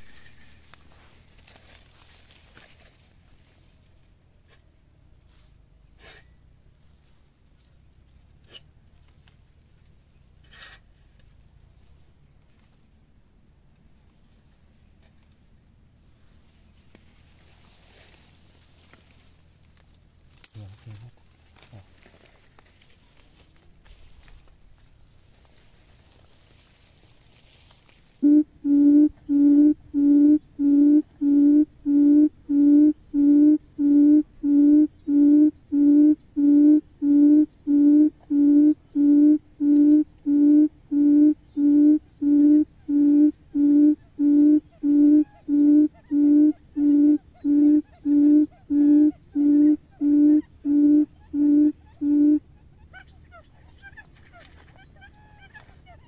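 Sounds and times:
bird hooting call: 0.0s - 2.7s, 28.2s - 56.0s.

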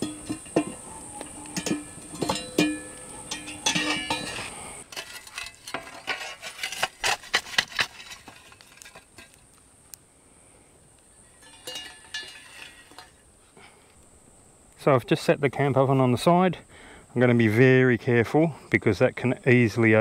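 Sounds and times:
metal shovel scraping in fire ring: 0.0s - 9.6s, 11.4s - 13.3s.

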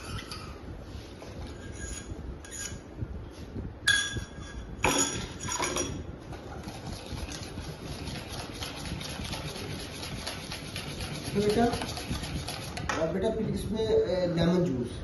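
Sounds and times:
whisk beating in a steel bowl: 6.4s - 13.2s.

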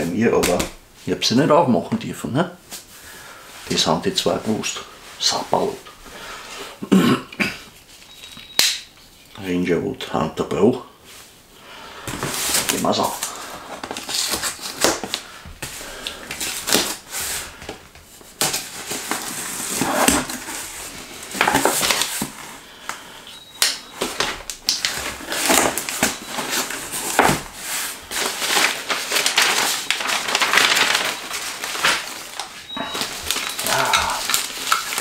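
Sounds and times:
paper packing rustling: 12.0s - 35.0s
packing tape tearing: 12.4s - 17.4s, 18.3s - 22.4s, 23.6s - 35.0s.

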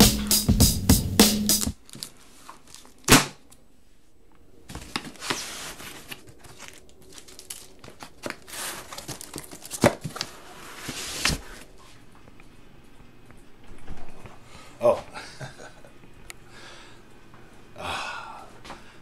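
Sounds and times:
paper and cardboard rustling: 4.7s - 11.6s.

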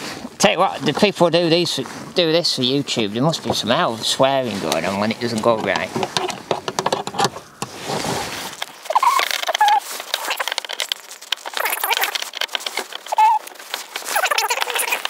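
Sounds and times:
plastic fixing clicking and scratching: 4.6s - 7.7s, 8.5s - 15.0s
short squeaks: 8.4s - 15.0s.

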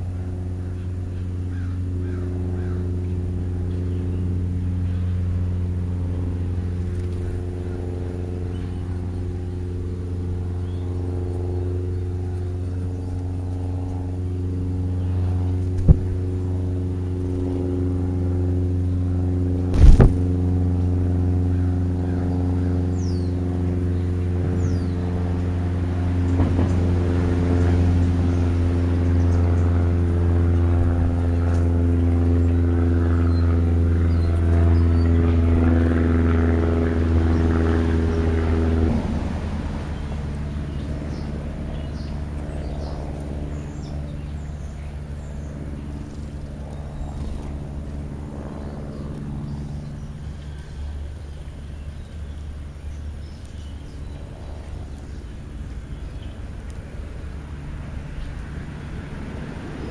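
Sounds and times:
loud thump: 19.7s - 20.2s
sharp knock: 19.7s - 20.2s.

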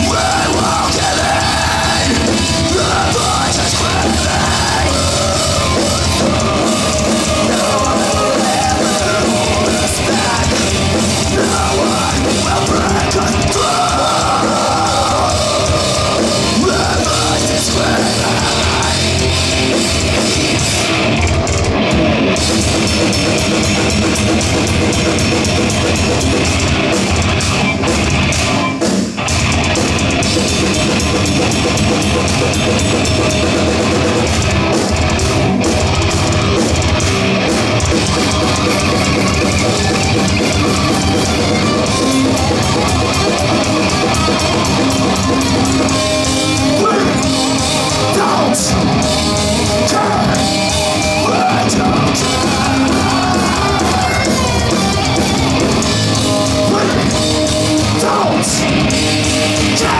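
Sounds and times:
heavy metal band playing live: 0.0s - 59.9s.

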